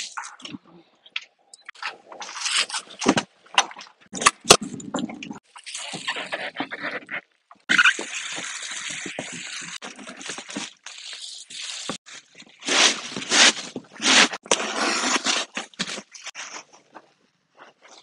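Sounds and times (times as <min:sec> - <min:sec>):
plastic sheet rustling and crinkling: 0:07.7 - 0:17.1.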